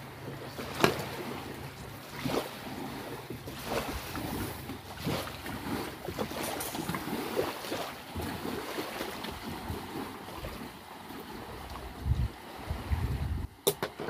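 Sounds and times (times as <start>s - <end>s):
surf: 0.0s - 14.0s
wind on microphone: 11.3s - 13.6s.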